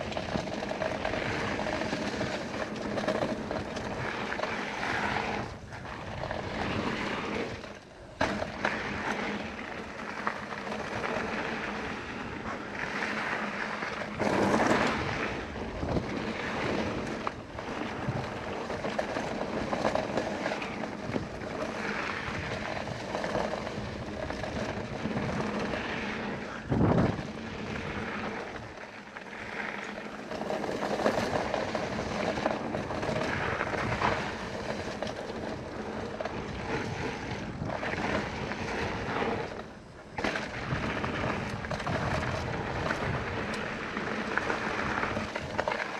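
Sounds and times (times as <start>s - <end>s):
bike knocking and rattling: 0.0s - 45.9s
bike tyres on dirt: 0.0s - 45.9s
wind rushing on microphone: 21.0s - 28.8s, 31.1s - 45.7s.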